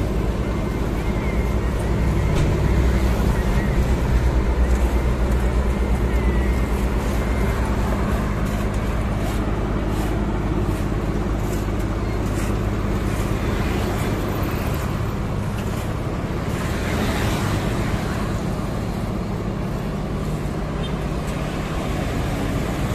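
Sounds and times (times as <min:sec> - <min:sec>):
heavy diesel engine noise: 0:00.0 - 0:22.9
passing vehicle rush: 0:12.8 - 0:22.9.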